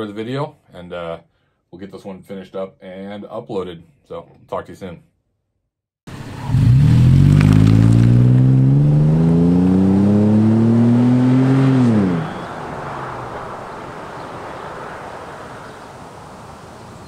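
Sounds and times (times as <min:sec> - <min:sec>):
car engine exhaust under throttle: 0:06.1 - 0:13.9.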